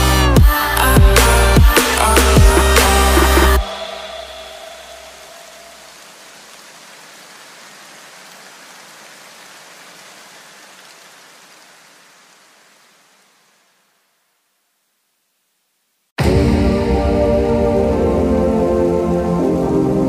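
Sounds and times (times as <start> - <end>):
electronic background music: 0.0 - 5.8
steady hiss: 1.2 - 16.1.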